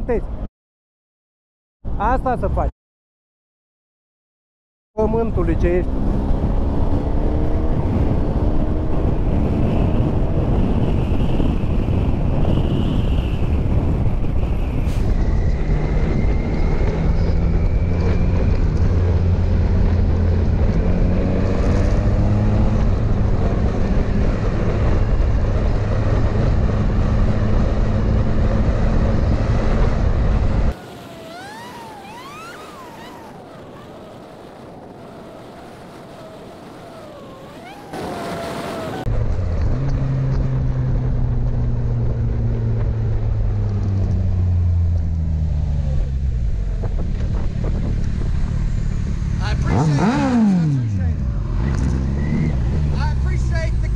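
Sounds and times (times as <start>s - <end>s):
motorcycle engine at speed: 5.0s - 53.9s
wind rushing on microphone: 5.0s - 53.9s
quick gliding tones: 30.7s - 39.1s.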